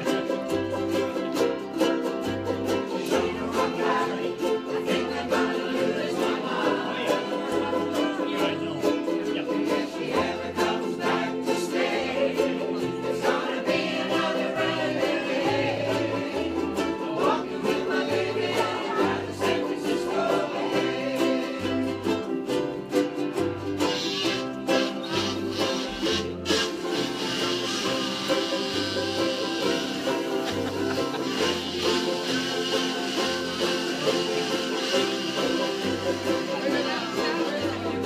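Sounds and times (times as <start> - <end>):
ukulele band strumming chords: 0.0 - 38.0
bass line: 23.6 - 38.0.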